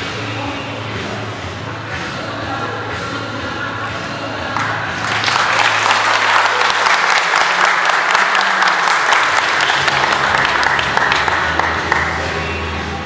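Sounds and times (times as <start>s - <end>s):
people clapping: 4.5s - 12.6s.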